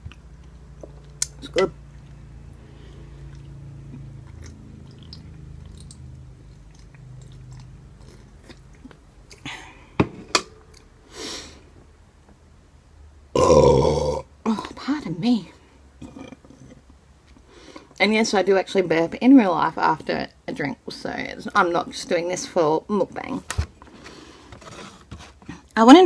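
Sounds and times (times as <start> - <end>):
low steady rumble: 0.0 - 22.9
loud burp: 13.3 - 14.3.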